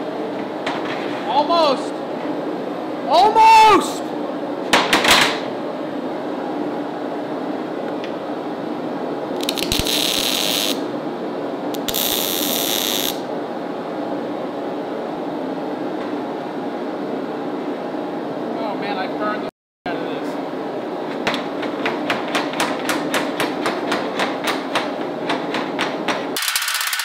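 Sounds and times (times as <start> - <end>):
arc welding crackle and hiss: 9.4 - 10.9, 11.7 - 13.2.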